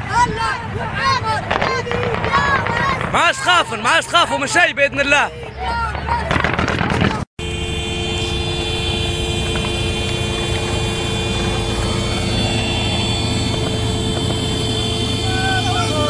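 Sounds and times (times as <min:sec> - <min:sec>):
vehicle engine running: 0:07.4 - 0:16.0.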